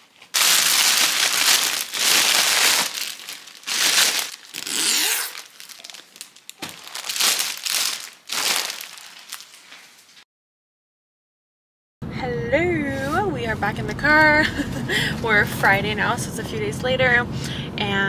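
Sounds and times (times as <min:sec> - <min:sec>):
cellophane crinkling: 0:00.0 - 0:10.2.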